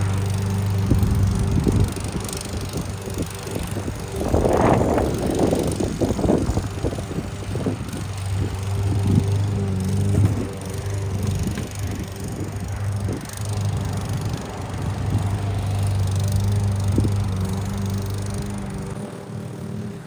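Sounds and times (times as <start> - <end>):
lawn mower running: 0.0 - 20.0
rough cutting noise: 0.0 - 20.0.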